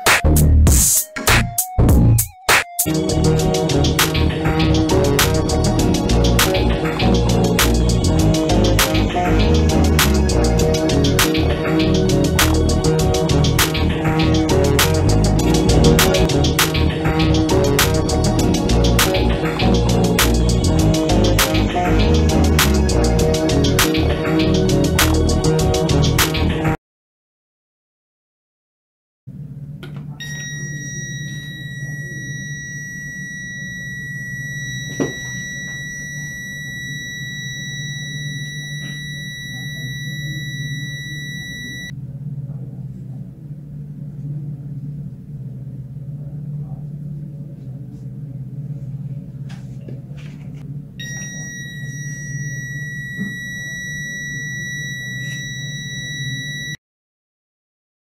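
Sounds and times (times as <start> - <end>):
low steady hum: 29.3 - 56.8
high-pitched alarm buzzer: 30.2 - 41.9, 51.0 - 56.8.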